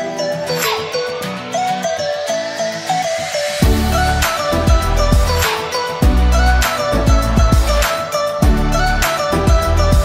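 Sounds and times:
bright melody over a beat: 0.0s - 10.0s.

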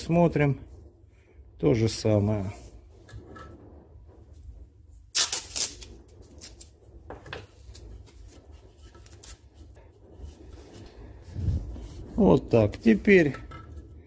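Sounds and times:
masking tape ripping: 5.1s - 6.7s
tape rustling: 5.1s - 13.3s.

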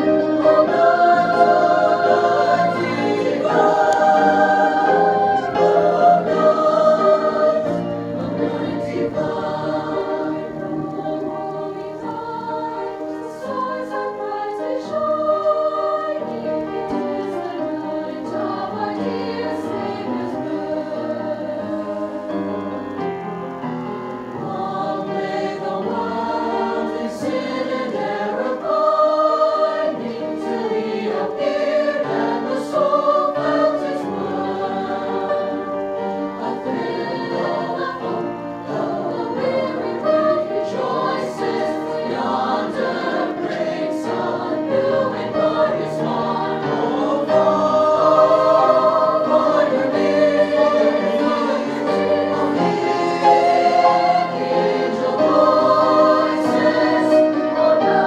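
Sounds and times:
choir singing in harmony: 0.0s - 58.0s.

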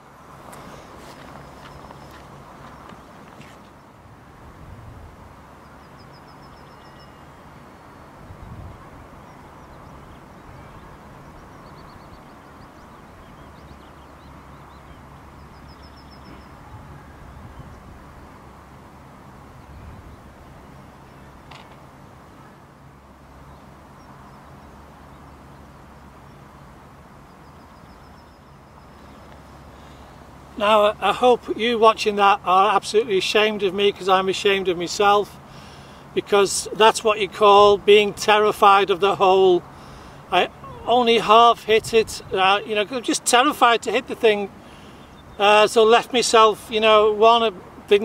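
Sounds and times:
outdoor background rumble and hiss: 0.0s - 48.0s
faint high chirps: 5.6s - 8.1s
small bird chirping: 5.6s - 8.2s, 9.1s - 16.7s.

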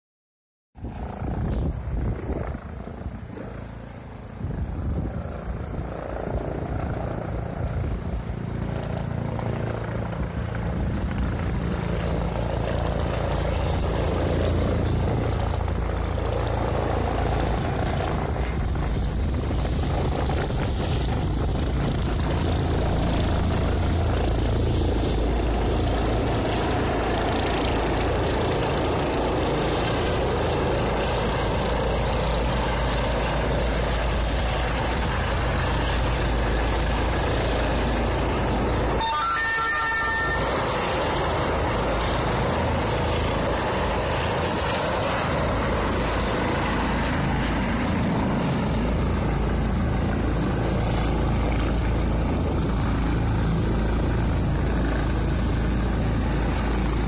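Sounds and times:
helicopter rotor rumble: 0.8s - 57.0s
high steady whine: 33.4s - 43.6s.

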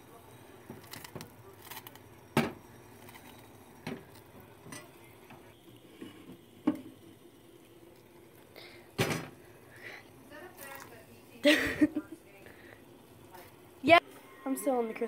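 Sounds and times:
liquid boiling with pops and ticks: 0.0s - 11.4s.

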